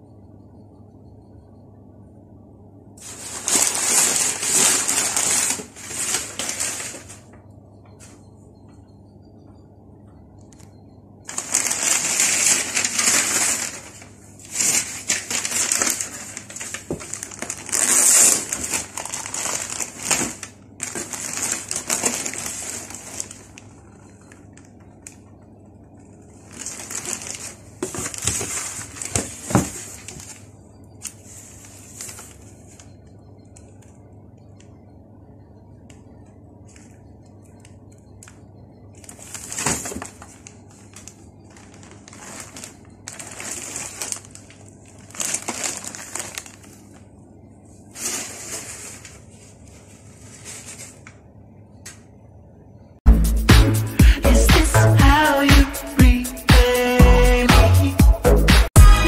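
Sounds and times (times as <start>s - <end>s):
plastic packaging crinkling: 3.0s - 7.4s, 11.3s - 25.2s, 26.2s - 33.0s, 38.9s - 47.1s, 47.9s - 51.2s.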